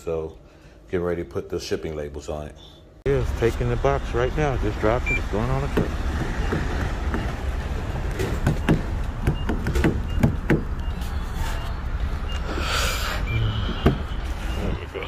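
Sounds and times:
vehicle engine rumbling: 3.1s - 15.0s.

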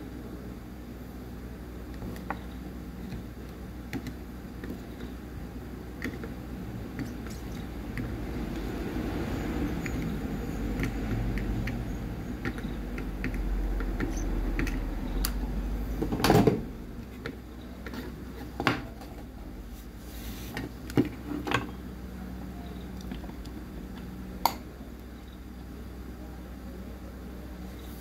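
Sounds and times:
low steady background noise: 0.0s - 28.0s
clicks and knocks of tools handled: 6.9s - 8.1s.

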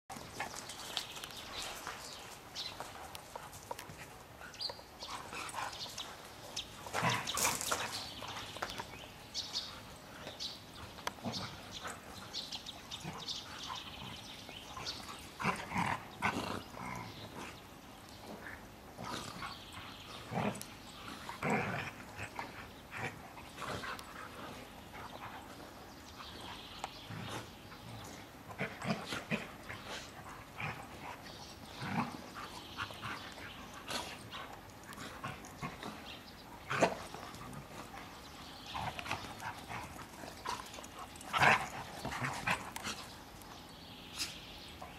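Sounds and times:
dogs play-fighting: 0.1s - 44.9s.

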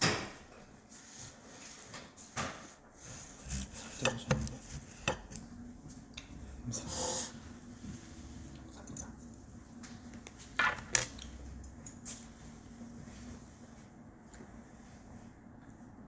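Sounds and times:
scrape or rustle: 0.9s - 5.0s, 6.7s - 8.5s.

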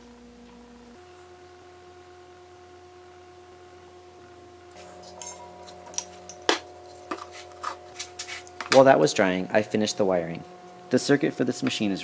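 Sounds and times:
electrical hum: 0.0s - 12.0s
wood clinking against glass vase: 4.8s - 8.9s.

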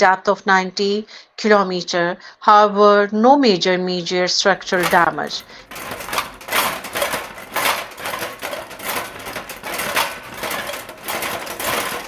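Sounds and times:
household objects rattling: 4.6s - 12.0s.

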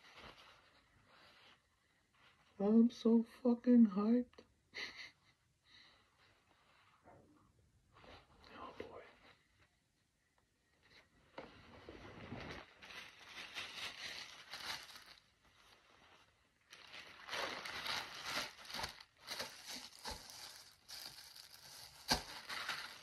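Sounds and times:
plastic bag crinkling and rustling: 0.0s - 2.6s, 11.5s - 23.0s.

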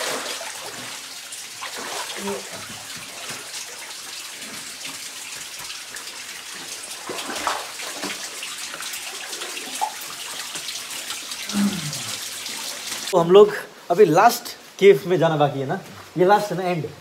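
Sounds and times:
shallow river splashing: 1.6s - 2.6s, 7.0s - 8.3s.

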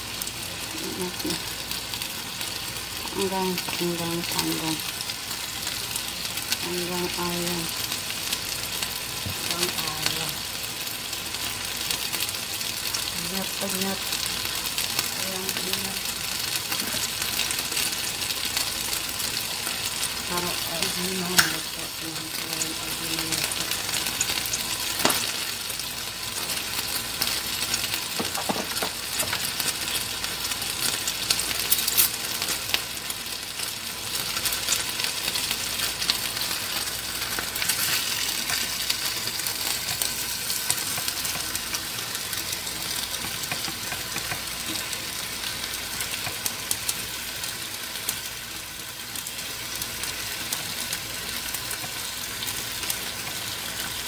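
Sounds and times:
chicken sizzling in oil: 0.0s - 54.0s.

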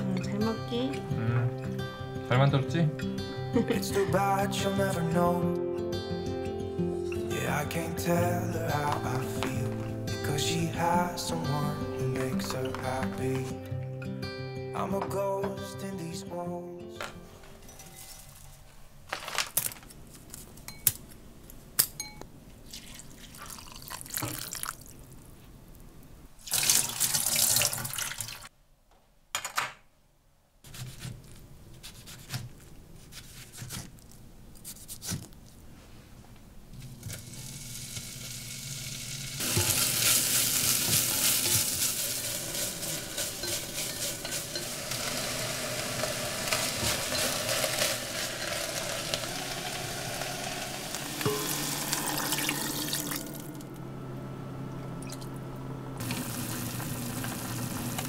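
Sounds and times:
food sizzling in pot: 7.3s - 13.6s, 36.8s - 53.7s, 56.0s - 58.0s
tap water running: 22.7s - 25.0s, 26.4s - 28.5s, 37.2s - 53.7s, 56.0s - 58.0s
rustling and clicks in glass bowl: 39.5s - 49.4s.

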